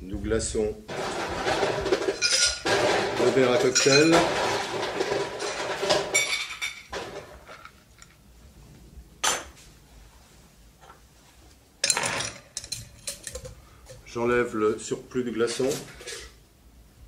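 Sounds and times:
ice cubes clinking against glass: 1.0 - 7.1.

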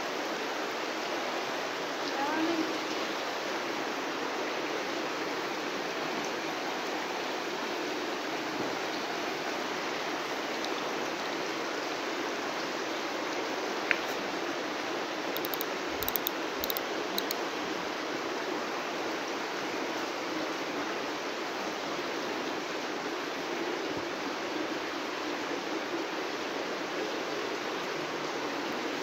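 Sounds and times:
light clicks: 15.4 - 17.4.

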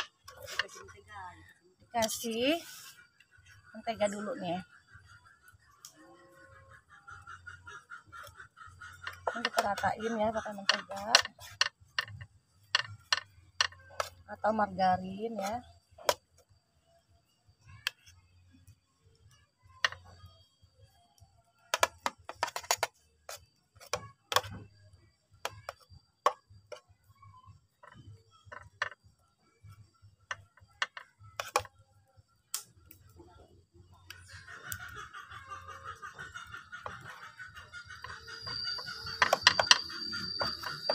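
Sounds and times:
clicks and taps on metal tin: 9.0 - 14.2, 37.9 - 40.9.

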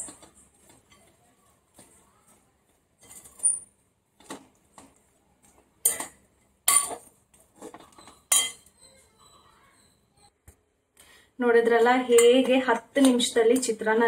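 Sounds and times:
spoon clinking on glass bowl: 8.0 - 9.0.

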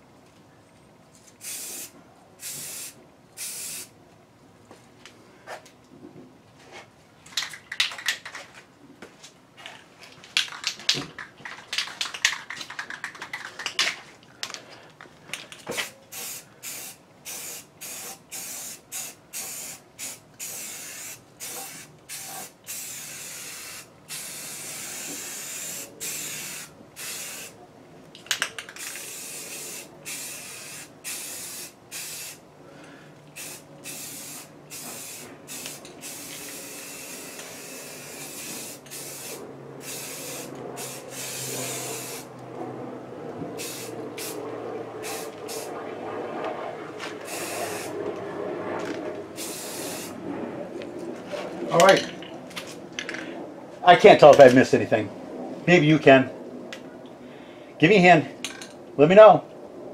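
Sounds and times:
paint spraying in hissing bursts: 1.4 - 3.9, 16.1 - 27.6, 28.8 - 32.4, 33.4 - 42.3, 43.6 - 44.4, 45.0 - 45.7, 47.2 - 48.0, 49.4 - 50.2
sharp clicks and rattling: 7.3 - 8.5, 10.2 - 15.7.

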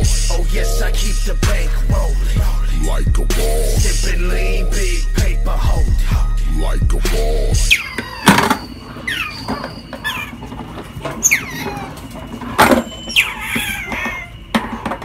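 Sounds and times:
otter chirping: 7.2 - 10.6, 11.2 - 12.2, 13.0 - 14.5.

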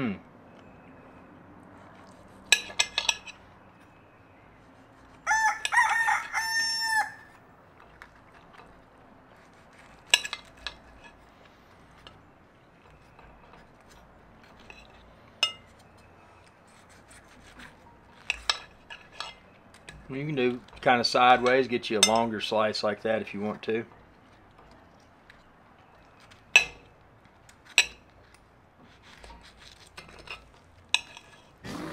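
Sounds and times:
rooster crowing: 5.2 - 7.4.

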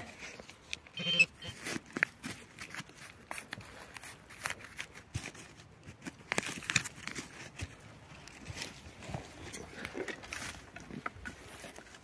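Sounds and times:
hand rustling soil and leaves: 0.0 - 12.0.

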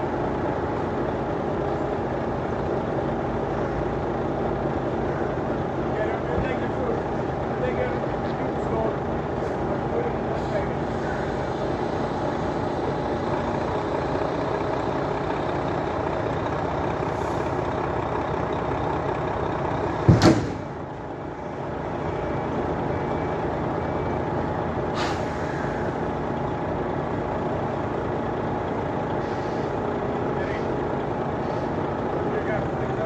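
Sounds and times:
heavy diesel machinery running: 0.0 - 33.0
short hiss burst: 25.0 - 25.5.

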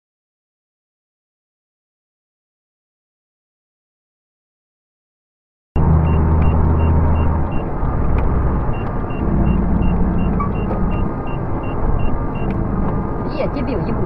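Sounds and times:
truck engine drone: 5.8 - 14.0
short high beeps: 8.7 - 12.5.

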